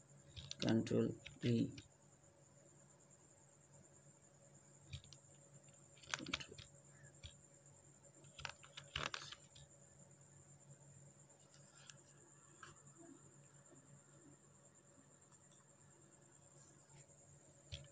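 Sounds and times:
keyboard keystrokes: 0.3s - 1.9s, 4.9s - 5.2s, 6.0s - 7.4s, 8.2s - 9.7s
faint high whine: 9.0s - 17.9s.

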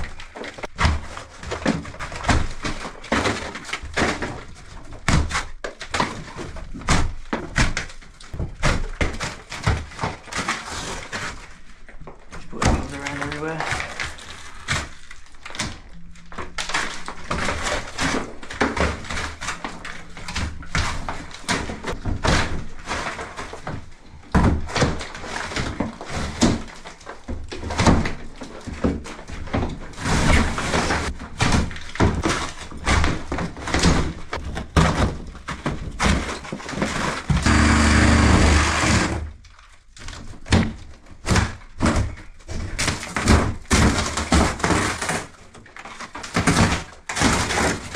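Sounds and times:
plasterboard being torn: 0.0s - 47.9s
thuds and cracks: 0.0s - 47.9s
timber boards splintering: 24.3s - 47.9s.

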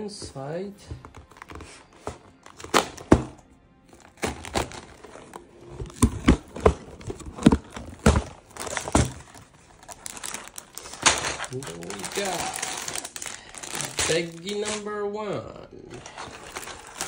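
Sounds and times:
crinkling: 0.9s - 15.0s, 15.8s - 17.0s
cardboard box snaps and knocks: 2.6s - 3.4s, 5.8s - 9.2s.

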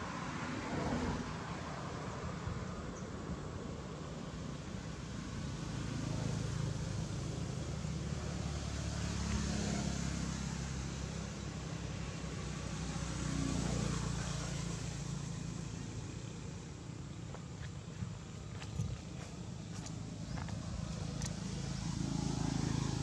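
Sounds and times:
low engine rumble: 3.6s - 23.0s.

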